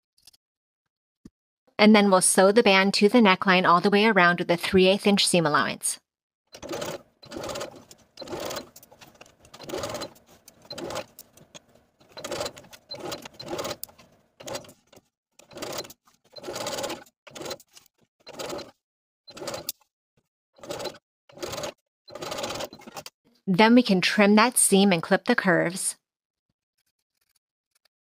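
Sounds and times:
sewing machine stitching: 6.5s - 19.8s, 20.6s - 23.1s.

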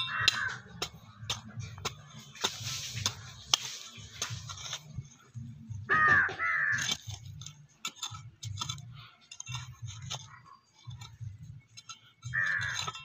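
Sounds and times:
hand hoe scraping stony soil: 0.0s - 13.0s
crow cawing: 0.1s - 0.6s, 5.9s - 7.0s, 12.4s - 12.8s.

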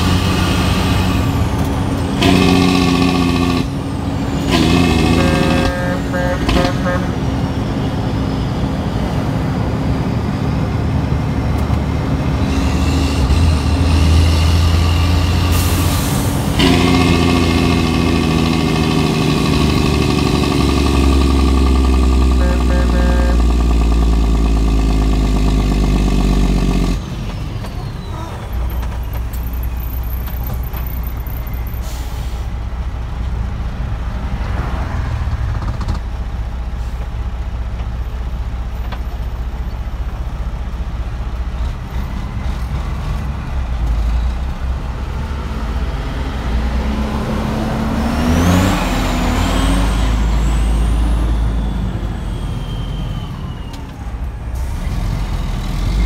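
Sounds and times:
diesel truck engine rumbling: 0.0s - 56.0s
air brake hisses: 31.6s - 32.6s.

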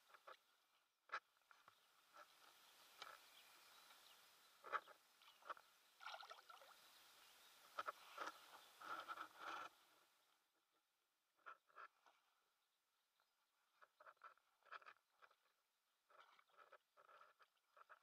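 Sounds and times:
fish splashing in water: 5.2s - 9.4s.

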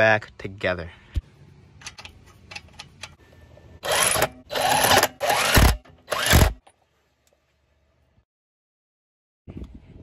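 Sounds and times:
impact driver bursts: 3.8s - 6.6s.

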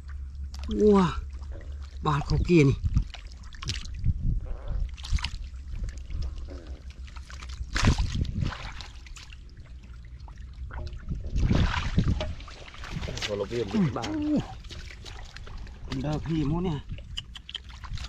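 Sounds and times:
hands splashing in muddy water: 5.0s - 9.6s, 11.2s - 18.0s.

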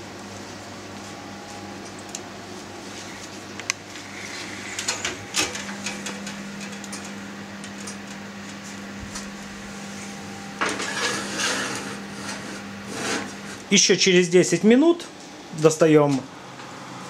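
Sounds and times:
steady low hum: 0.0s - 17.0s
pan scraping onto oven rack: 10.6s - 13.6s.

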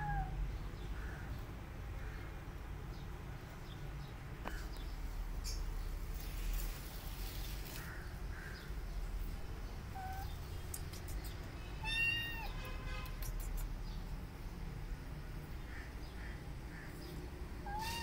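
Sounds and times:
kitten meowing: 0.0s - 0.3s, 9.9s - 10.4s, 11.8s - 12.6s, 17.6s - 18.0s.

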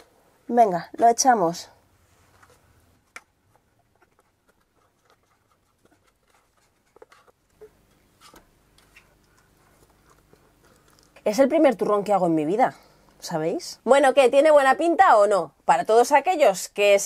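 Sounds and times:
faint taps and scrapes: 2.1s - 11.2s.

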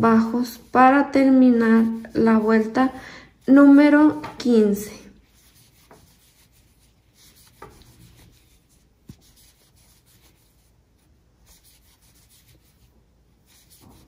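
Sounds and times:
yarn rubbing and rustling: 5.2s - 14.0s.

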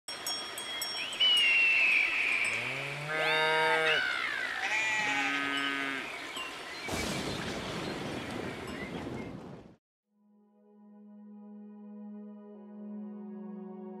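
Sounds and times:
high bell-like ringing: 0.1s - 2.6s
cow mooing: 2.5s - 6.1s
sheep bleating: 2.7s - 6.1s.

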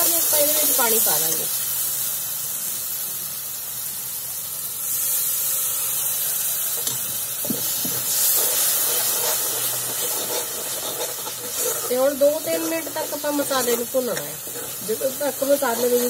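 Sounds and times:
masala sizzling in hot oil: 0.0s - 16.0s
ladle scraping pan: 7.9s - 16.0s.

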